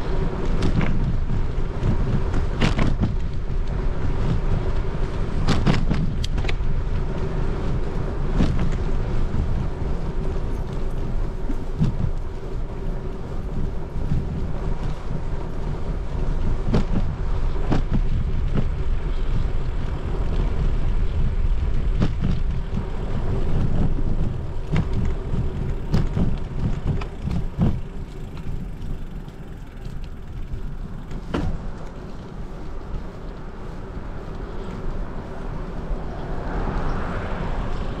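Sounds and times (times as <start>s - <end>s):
bike knocks and rattles: 0.0s - 33.4s
bicycle tyres rumbling: 0.0s - 38.0s
wind on microphone: 0.0s - 38.0s.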